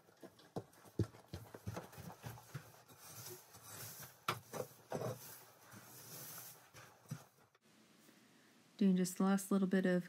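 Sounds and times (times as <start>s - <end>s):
footsteps on straw floor: 0.1s - 7.5s
straw rustling: 1.6s - 7.5s.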